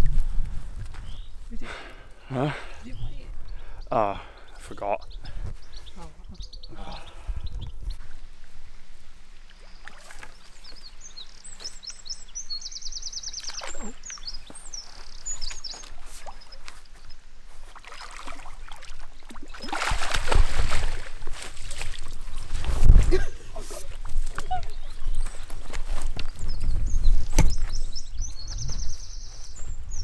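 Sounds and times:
small bird singing trills: 9.7 - 17.2, 24.4 - 25.5, 26.3 - 30.0
fish splashing at surface: 17.8 - 21.1.

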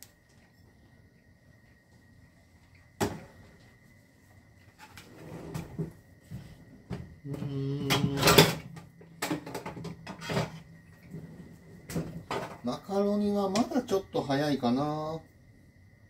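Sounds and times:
kitchen knocks and clatter: 3.0 - 3.3, 6.9 - 10.7, 11.9 - 12.7.

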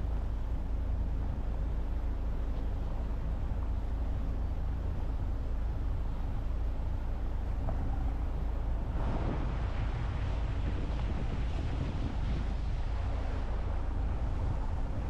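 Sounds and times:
motorboat engine running: 0.0 - 15.0
water splashing along hull: 0.0 - 15.0.

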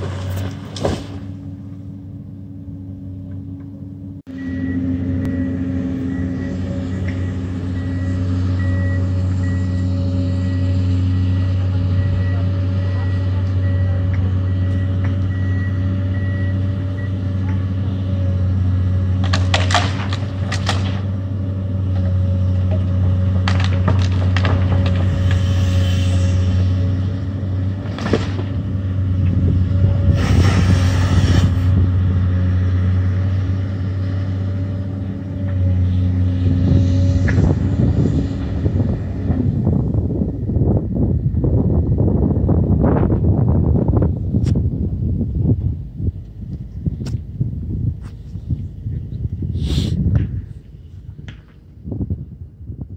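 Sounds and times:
diesel engine running: 0.0 - 52.9
high-pitched travel alarm beeping: 4.3 - 10.6
tree cracking: 19.2 - 21.1, 23.4 - 25.4.

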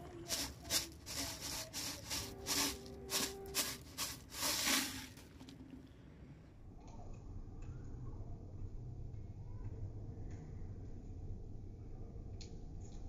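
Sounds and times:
snack pieces rattling in plastic jar: 0.0 - 5.4.

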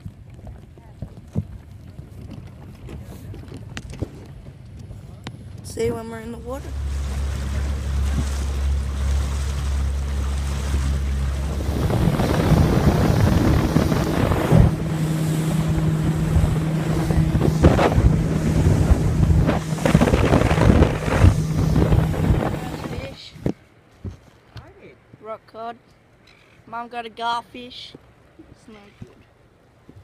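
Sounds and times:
boat motor running: 0.0 - 23.5
wind buffeting microphone: 0.0 - 23.6
rushing water: 6.4 - 23.5.

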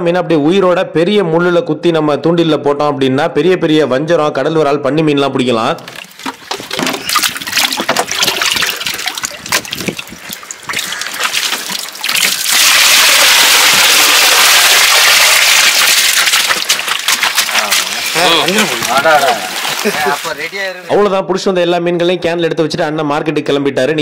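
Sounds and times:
fish splashing in crate: 5.9 - 20.5
water gushing into tub: 6.0 - 20.7.

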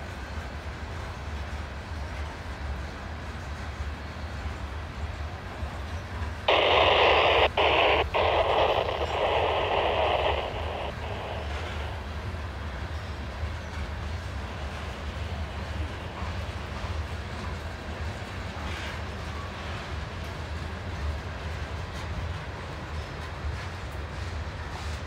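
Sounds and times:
radio static hiss: 6.4 - 18.2.

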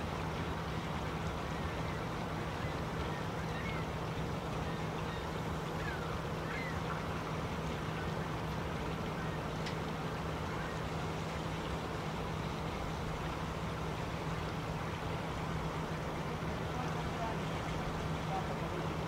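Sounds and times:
faint high bird calls: 1.5 - 7.1.

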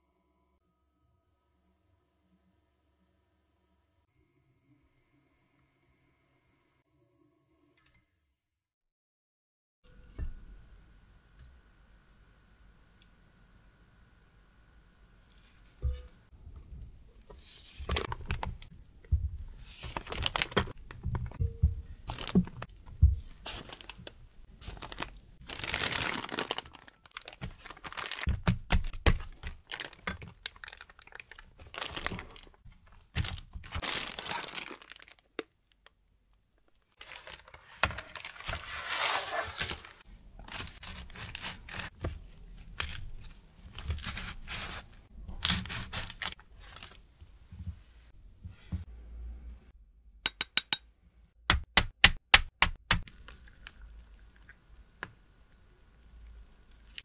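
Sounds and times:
plastic piping bag crinkling: 19.9 - 21.2, 22.0 - 35.4, 37.0 - 41.9, 45.4 - 47.0.

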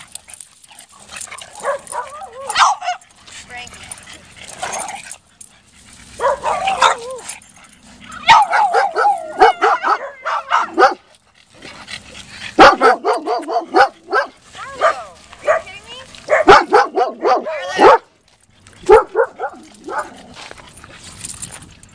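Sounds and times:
dog barking and yipping: 0.8 - 3.2, 6.1 - 11.1, 12.5 - 18.1, 18.8 - 20.3.

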